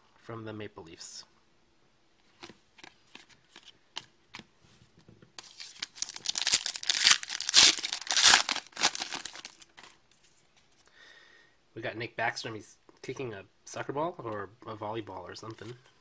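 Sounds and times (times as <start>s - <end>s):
foil wrapper tearing and crinkling: 5.4s - 9.7s.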